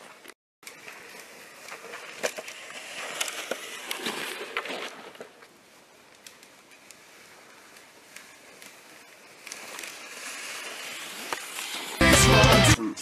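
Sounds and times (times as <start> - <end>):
sled runners scraping over snow: 0.0 - 12.0
small clicks: 6.1 - 7.0.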